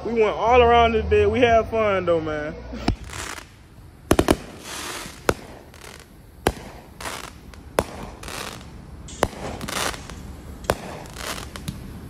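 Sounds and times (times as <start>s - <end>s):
fireworks bangs: 2.8s - 12.0s
crackling glitter: 3.0s - 11.8s.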